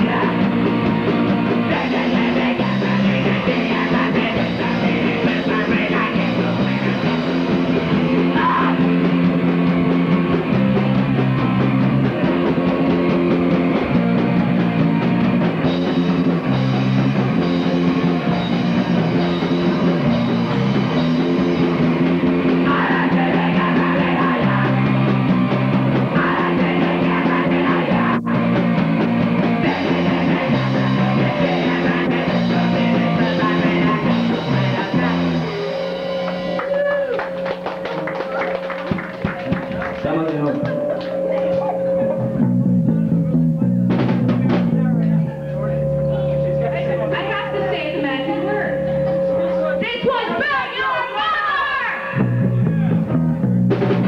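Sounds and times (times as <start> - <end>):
person singing: 0.0 - 0.9, 1.5 - 9.1, 22.5 - 25.2, 26.0 - 28.8, 29.4 - 36.0
punk rock band playing: 0.0 - 54.0.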